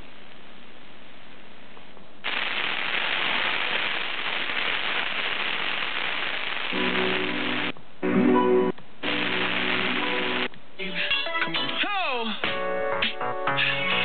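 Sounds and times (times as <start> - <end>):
radio static hiss: 0.0 - 1.6, 2.2 - 7.8, 8.9 - 11.1.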